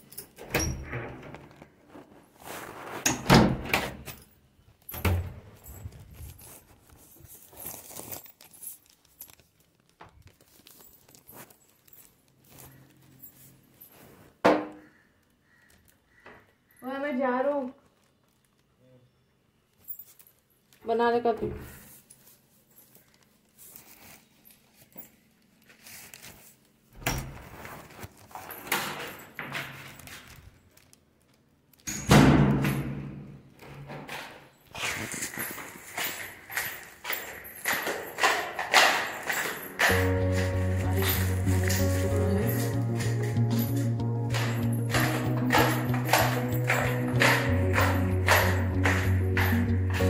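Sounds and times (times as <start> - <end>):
keys jangling: 0.0 - 0.4, 4.0 - 9.8, 34.7 - 50.0
door shutting: 0.4 - 1.5, 3.0 - 4.2, 27.0 - 27.6
cloth bag rustling: 1.6 - 3.0, 5.6 - 14.4, 21.8 - 29.3, 34.6 - 44.7
metal clattering against door latch: 36.4 - 40.2.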